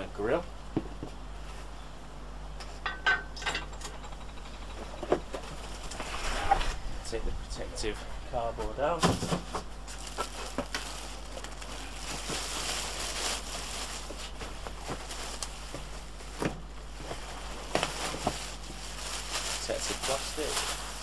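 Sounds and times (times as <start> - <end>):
plastic bag crinkling: 9.2 - 21.0.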